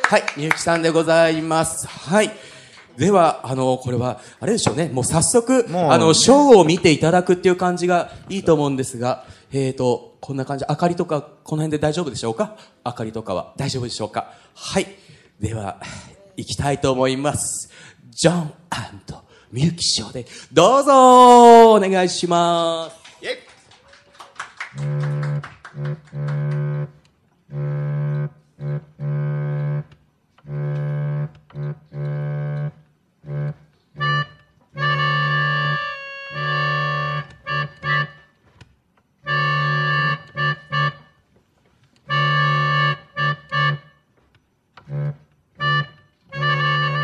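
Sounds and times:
organ playing chords: 24.7 - 38.4, 39.2 - 41.3, 42.0 - 44.1, 44.8 - 47.0.

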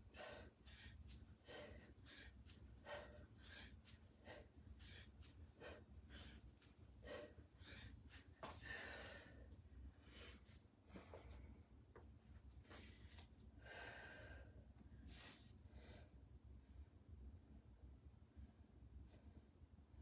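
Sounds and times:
person breathing hard: 0.0 - 11.6, 12.7 - 16.2.

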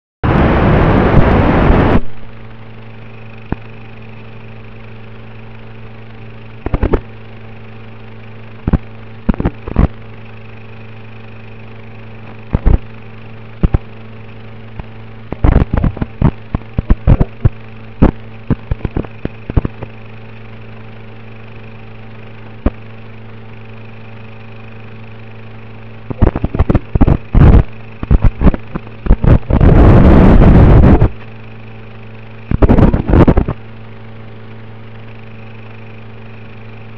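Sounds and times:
rush of static: 0.2 - 3.7, 14.8 - 19.9, 26.1 - 31.2, 32.5 - 33.6
static crackles: 0.2 - 20.7, 21.3 - 22.9, 25.9 - 33.7
steady electrical hum: 0.2 - 36.9.

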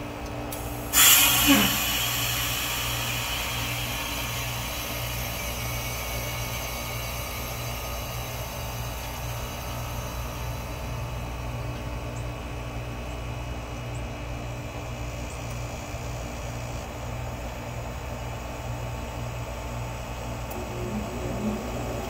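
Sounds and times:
heat pump humming: 0.0 - 22.0
hiss: 0.6 - 10.6.

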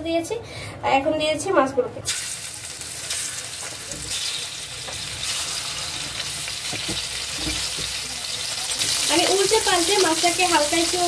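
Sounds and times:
fish frying in hot oil: 2.1 - 11.0.

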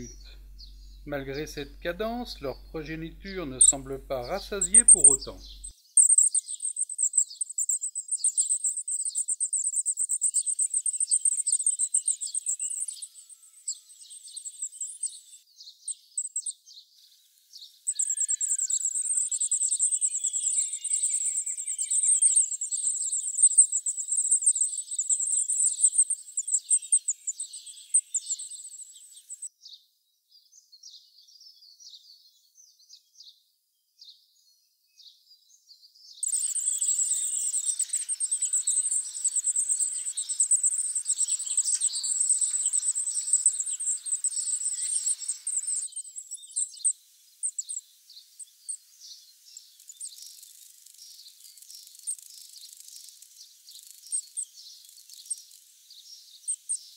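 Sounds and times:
nestlings cheeping: 0.0 - 5.7, 36.2 - 45.9.

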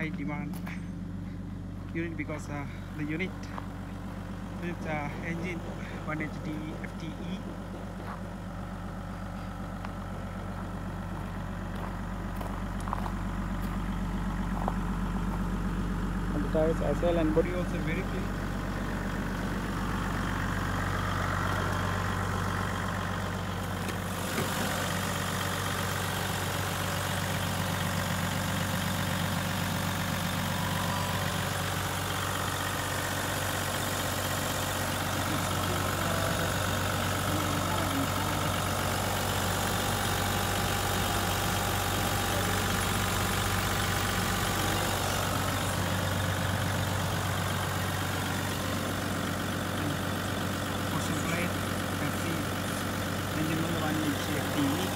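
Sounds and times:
diesel engine idling: 0.0 - 54.9.

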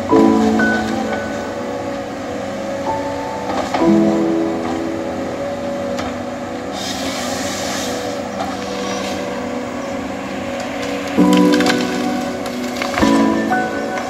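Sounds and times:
hiss: 6.7 - 14.0.

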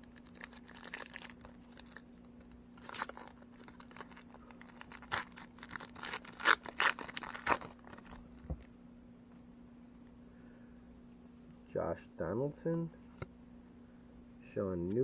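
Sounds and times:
foil wrapper tearing and crinkling: 0.0 - 8.4.

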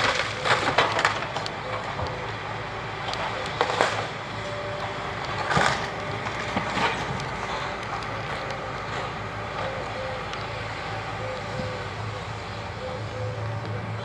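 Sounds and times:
timber cracking and crashing: 0.0 - 2.0, 3.5 - 4.1, 5.3 - 7.2
excavator diesel engine running: 0.0 - 14.0.

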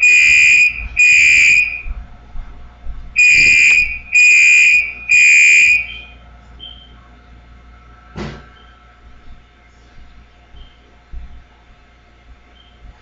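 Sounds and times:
fire alarm beeping: 0.0 - 1.9, 3.2 - 6.8.

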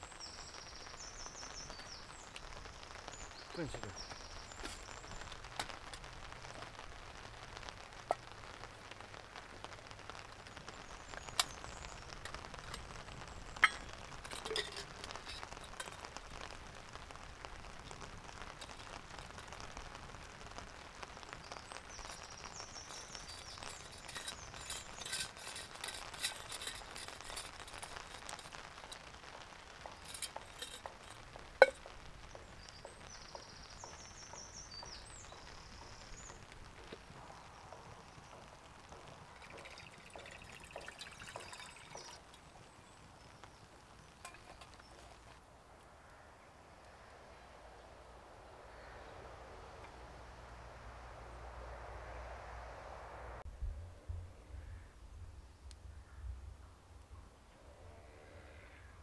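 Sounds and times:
wood fire crackling: 0.0 - 51.8
metal mugs clinking: 13.6 - 16.2, 22.9 - 29.0, 29.9 - 31.8, 39.4 - 42.5, 44.2 - 45.0.

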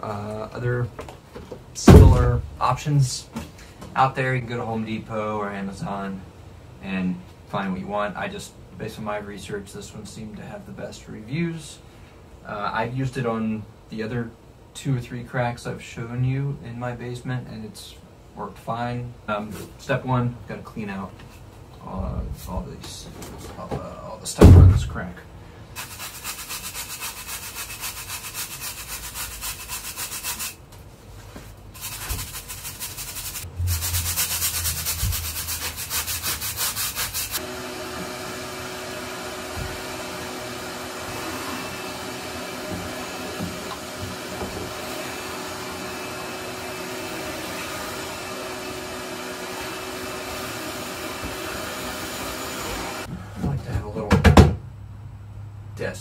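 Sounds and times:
brush scrubbing concrete wall: 25.8 - 30.6, 31.8 - 37.4
shop vacuum humming: 37.0 - 53.1.

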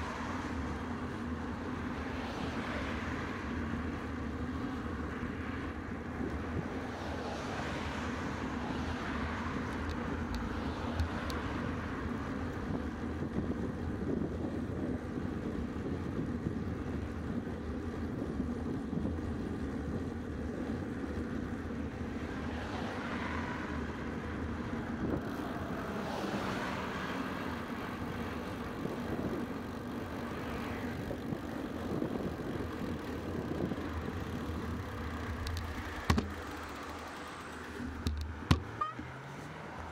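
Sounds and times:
cars passing: 0.0 - 39.9
bicycle tyre noise: 0.1 - 39.9
wind noise: 12.1 - 20.9, 27.8 - 36.6.

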